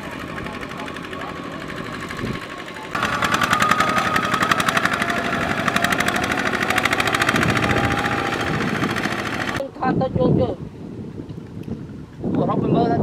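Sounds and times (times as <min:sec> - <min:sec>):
diesel engine chugging: 0:00.0 - 0:09.6
thin whine: 0:00.0 - 0:09.6.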